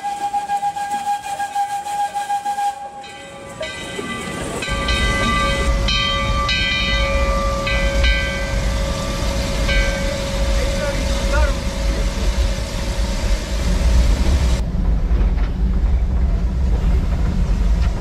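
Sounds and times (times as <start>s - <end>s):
steam whistle blasts: 0.0s - 3.2s
low rumble: 4.6s - 18.0s.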